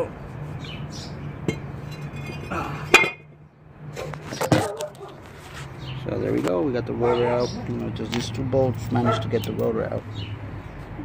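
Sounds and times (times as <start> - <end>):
metal clanking on concrete: 1.4 - 3.3.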